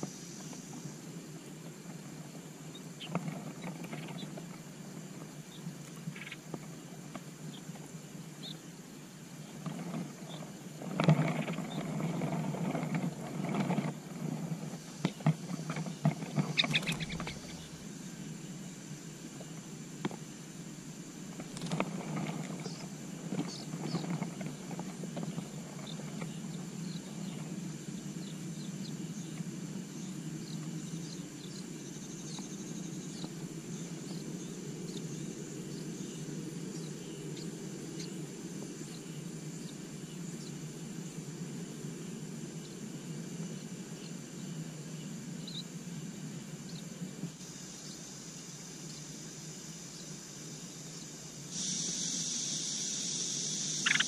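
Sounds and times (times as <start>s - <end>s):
nestlings begging chirps: 0.0s - 12.4s, 14.6s - 19.7s, 21.4s - 40.6s, 46.7s - 54.0s
steady low rumble: 14.0s - 31.8s.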